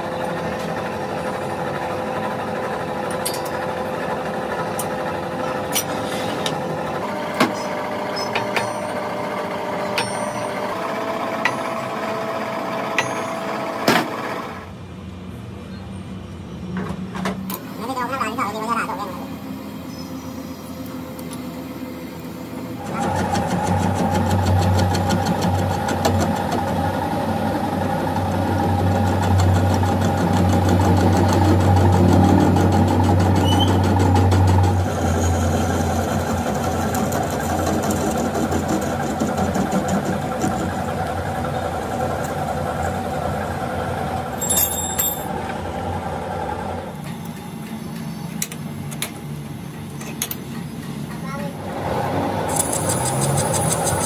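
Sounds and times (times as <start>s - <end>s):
metal lathe humming and whining: 0.0s - 14.7s.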